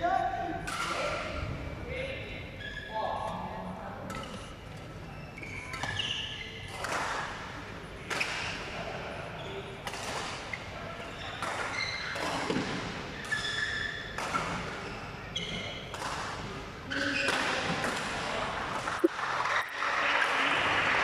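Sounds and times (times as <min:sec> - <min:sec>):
shoes squeaking on floor: 0:02.6 - 0:03.3, 0:04.2 - 0:06.8, 0:09.4 - 0:09.8, 0:10.5 - 0:12.6, 0:13.2 - 0:15.9
rackets hitting shuttlecocks: 0:09.8 - 0:10.4.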